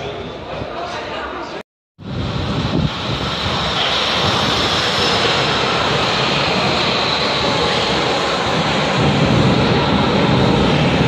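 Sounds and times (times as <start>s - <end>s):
high whine: 2.0s - 11.0s
train rumbling on rails: 2.0s - 11.0s.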